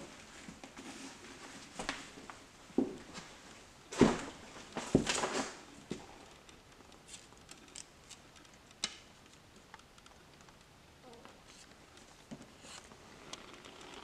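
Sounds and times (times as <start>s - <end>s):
clothing rustle: 0.0s - 7.7s
tape and paper crackling: 4.0s - 14.0s.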